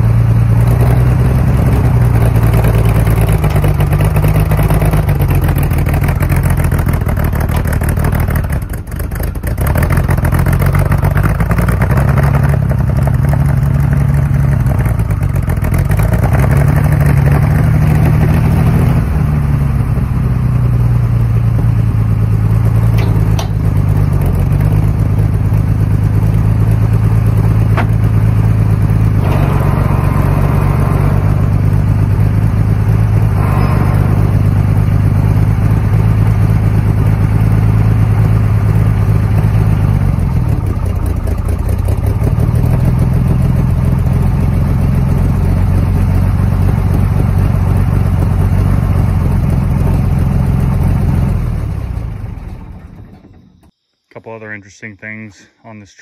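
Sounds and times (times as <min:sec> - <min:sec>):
truck engine running: 0:00.0 - 0:56.0
brief knocks: 0:22.9 - 0:24.0.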